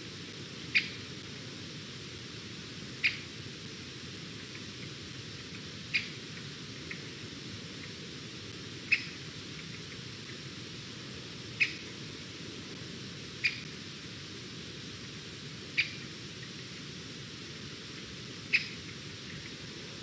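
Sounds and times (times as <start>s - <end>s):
steady hiss: 0.0s - 20.0s
eagle squeaky calls: 0.7s - 1.0s, 3.0s - 3.2s, 8.9s - 9.2s, 11.6s - 11.8s, 13.4s - 13.6s, 18.5s - 18.8s.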